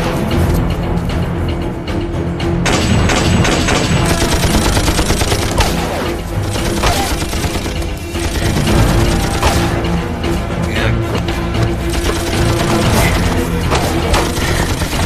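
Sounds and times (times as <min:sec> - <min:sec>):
background music: 0:00.0 - 0:15.0
machine gun firing bursts: 0:02.7 - 0:09.7, 0:11.8 - 0:15.0.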